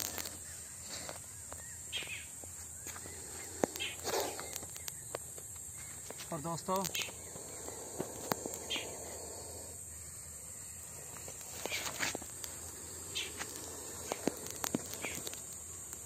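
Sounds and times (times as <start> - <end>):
insects droning: 0.0 - 16.0
sharp clicks and scrapes: 2.9 - 9.1, 11.0 - 16.0.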